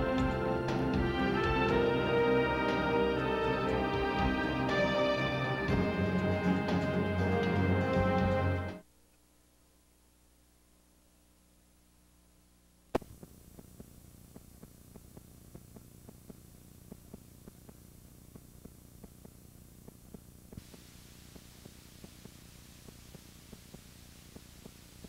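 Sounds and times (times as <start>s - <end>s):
tape hum and hiss: 0.0s - 25.0s
small tape ticks: 13.0s - 25.0s.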